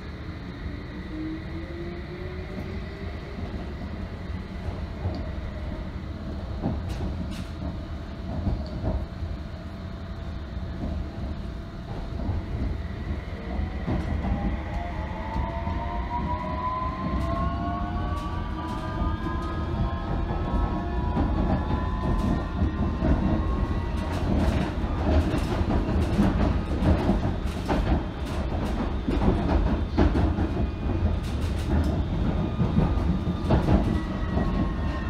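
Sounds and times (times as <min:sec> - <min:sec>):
train rumble: 0:00.0 - 0:35.0
train wheels clacking: 0:20.0 - 0:35.0.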